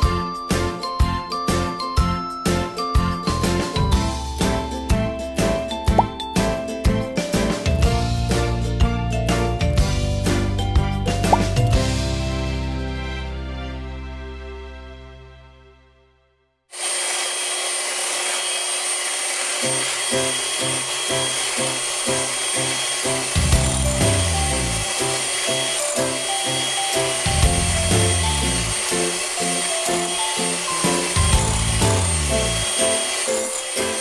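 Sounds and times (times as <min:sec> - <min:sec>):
background music with steady beat: 0:00.0 - 0:13.6
electric hand mixer whining: 0:16.7 - 0:34.0.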